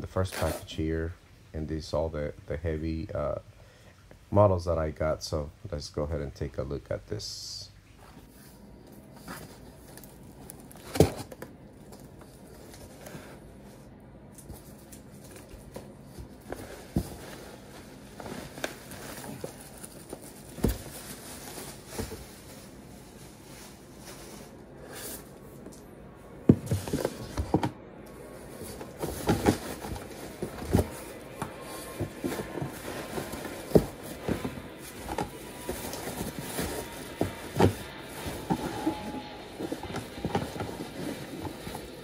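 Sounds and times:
cardboard rustling and scraping: 0.2 - 0.8, 8.1 - 25.3, 26.5 - 42.0
boxes knocking against box: 10.8 - 11.4, 28.6 - 41.9.

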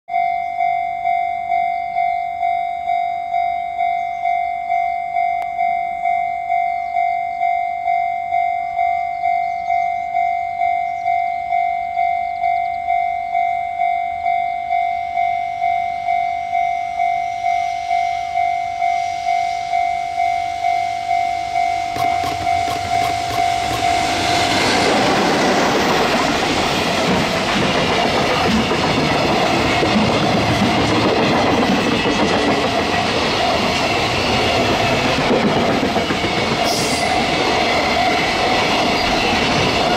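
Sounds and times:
level crossing bell ringing: 0.1 - 24.8
freight train hiss: 36.1 - 39.9.

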